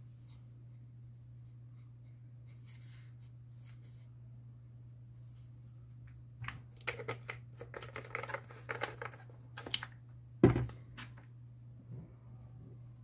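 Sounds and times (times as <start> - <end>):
hands handling tools and parts: 6.0 - 11.3.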